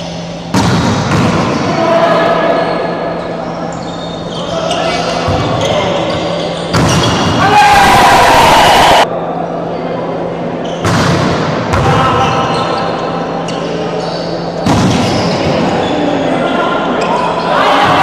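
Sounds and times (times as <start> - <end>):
volleyball being struck: 0.5 - 1.6.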